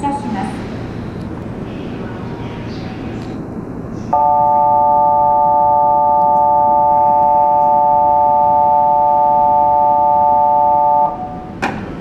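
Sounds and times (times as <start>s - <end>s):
electronic warning tone chord: 4.2s - 11.5s
sharp clunk: 11.6s - 12.0s.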